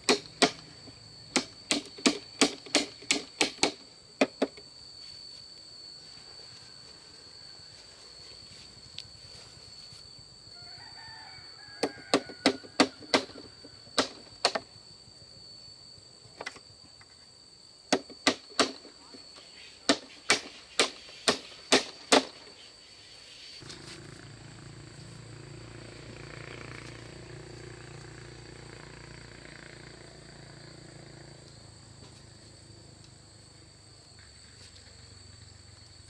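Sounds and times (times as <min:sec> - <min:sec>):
hammer striking bamboo: 0:00.0 - 0:00.7, 0:01.3 - 0:04.6, 0:11.8 - 0:14.7, 0:17.9 - 0:18.9, 0:19.8 - 0:22.4
rooster crowing: 0:10.5 - 0:13.9.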